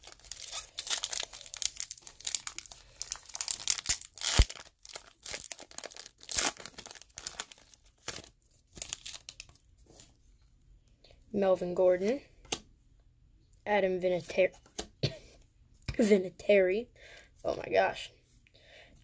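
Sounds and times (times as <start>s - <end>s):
foil wrapper crinkling and tearing: 0.0s - 9.6s.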